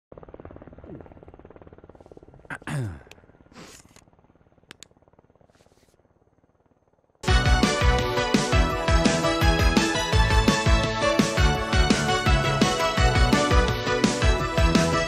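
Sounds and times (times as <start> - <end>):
helicopter rotors pulsing: 0.1 - 15.0
sharp clicks: 4.7 - 4.9.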